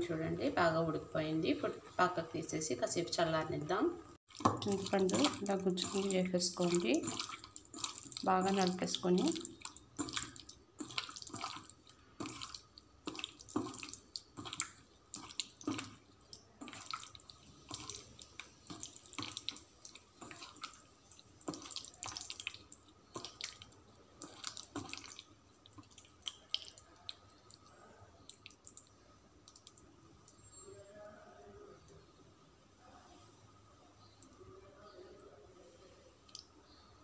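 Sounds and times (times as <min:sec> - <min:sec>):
wet squelches and splashes: 0:04.3 - 0:30.5.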